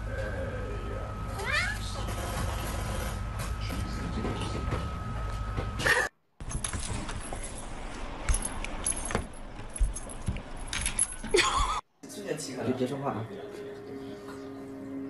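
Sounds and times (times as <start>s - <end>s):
light metallic jingling: 8.3s - 11.4s.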